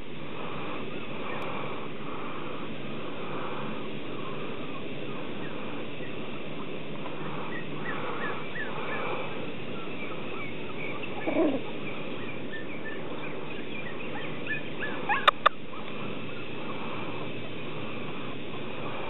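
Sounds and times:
steady background noise: 0:00.0 - 0:19.0
puppy yipping: 0:14.2 - 0:15.9.

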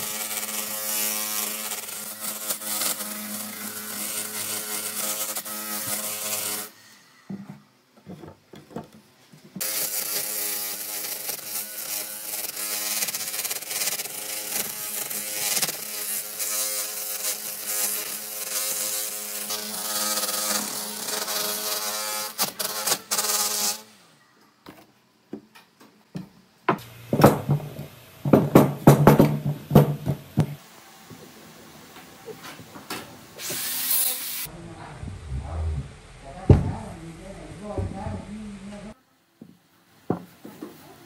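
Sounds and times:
sander grinding bark off log: 0:00.0 - 0:06.7, 0:09.6 - 0:23.8
irregular knocks and rubbing: 0:07.3 - 0:09.6.

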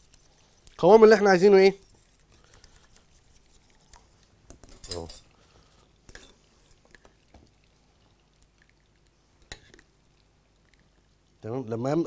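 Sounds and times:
metal spoon scraping saucepan: 0:04.6 - 0:05.3, 0:06.1 - 0:06.8.

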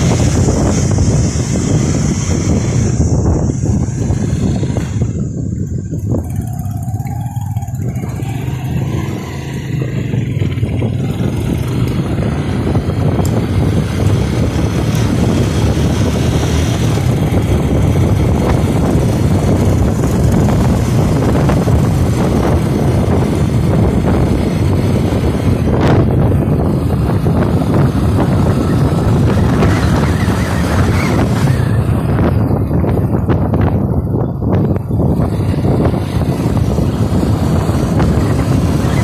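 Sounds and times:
small motorcycle engine running: 0:00.0 - 0:39.0
wind and road noise: 0:00.0 - 0:39.0.

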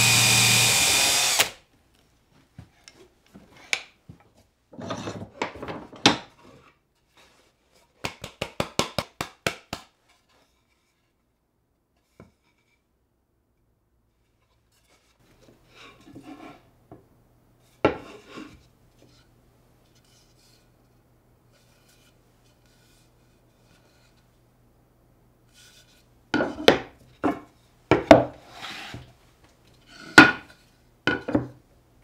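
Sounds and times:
wooden scrapes: 0:14.7 - 0:16.7, 0:28.4 - 0:30.7.

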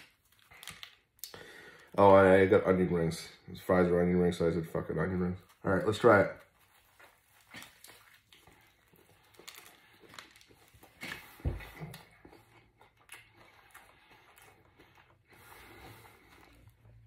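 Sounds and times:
person chewing food: 0:06.6 - 0:17.0.

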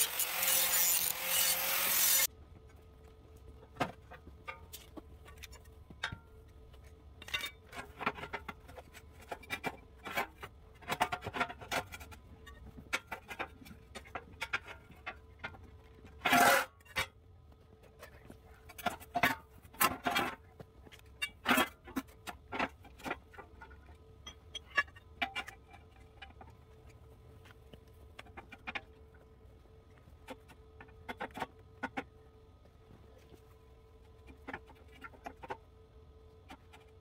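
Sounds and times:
metal scraping: 0:00.0 - 0:02.3
faint steady hum: 0:00.0 - 0:37.0.

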